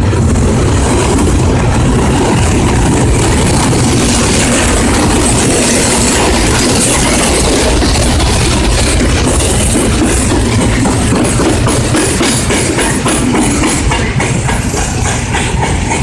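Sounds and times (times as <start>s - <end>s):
diesel locomotive engine drone: 0.0s - 16.0s
wagons rolling on steel rails: 0.0s - 16.0s.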